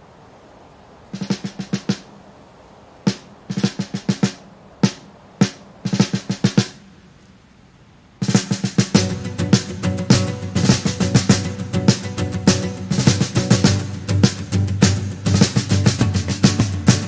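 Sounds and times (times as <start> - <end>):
drum kit playing: 1.2 - 2.1, 3.1 - 6.8, 8.2 - 17.0.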